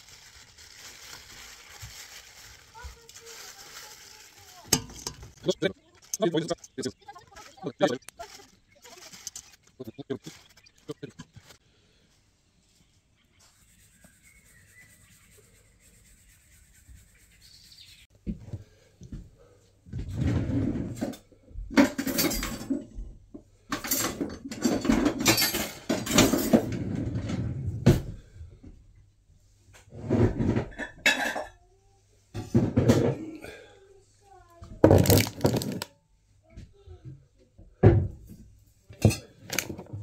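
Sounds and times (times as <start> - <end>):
dishes and utensils clinking: 4.7 - 5.4, 21.8 - 22.9, 23.7 - 26.7, 30.7 - 31.6, 39.0 - 39.8.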